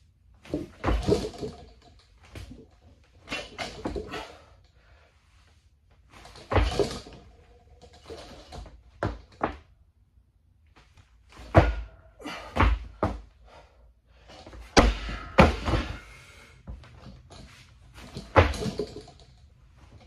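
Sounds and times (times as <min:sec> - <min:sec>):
barbell thudding and clanking: 0:00.5 - 0:01.8, 0:06.3 - 0:09.6, 0:14.6 - 0:16.1, 0:17.1 - 0:19.4.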